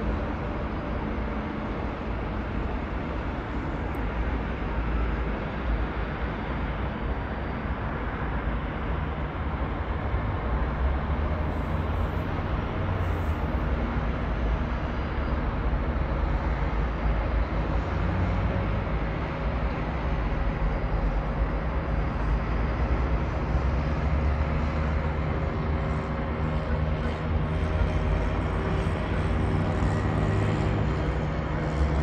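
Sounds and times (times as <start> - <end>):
congested road traffic: 0.0 - 32.0.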